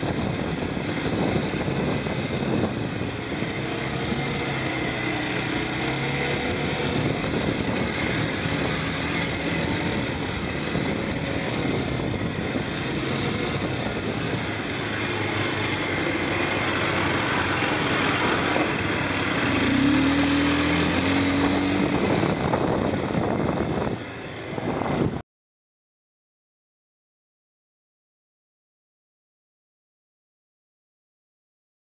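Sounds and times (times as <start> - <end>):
quad bike engine running: 0.0 - 25.2.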